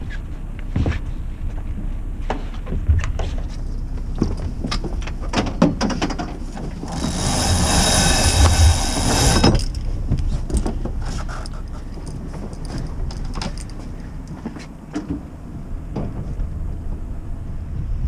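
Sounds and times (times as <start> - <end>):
low steady rumble: 0.0 - 18.0.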